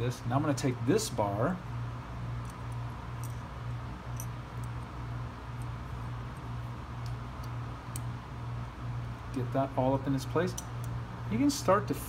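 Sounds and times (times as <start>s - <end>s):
steady low hum: 0.0s - 12.0s
small metal parts clicking and scraping: 2.4s - 8.1s.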